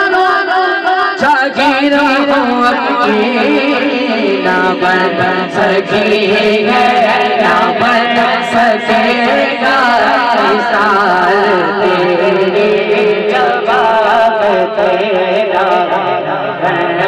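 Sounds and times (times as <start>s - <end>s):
man singing into a microphone: 0.0s - 17.0s.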